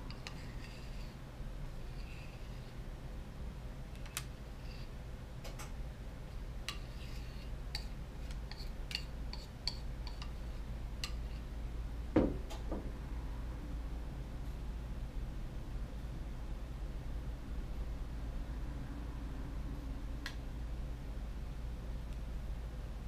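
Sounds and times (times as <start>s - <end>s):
metal spoon clinking on pot: 8.5s - 10.4s.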